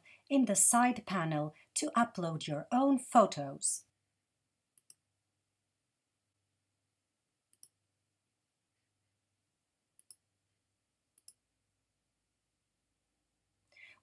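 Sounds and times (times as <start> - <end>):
faint computer mouse clicks: 4.8 - 5.0, 7.5 - 7.8, 10.0 - 10.2, 11.2 - 11.4.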